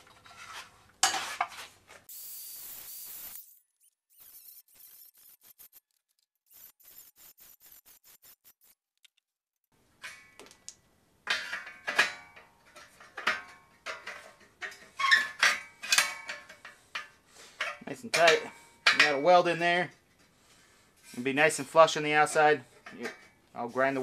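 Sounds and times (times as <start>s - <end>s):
angle iron clanking on steel tubing: 11.2s - 19.6s.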